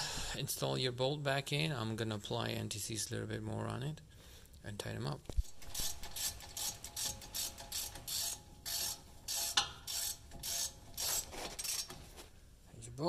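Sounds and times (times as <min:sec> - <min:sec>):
ratchet wrench clicking: 0:05.6 - 0:12.0.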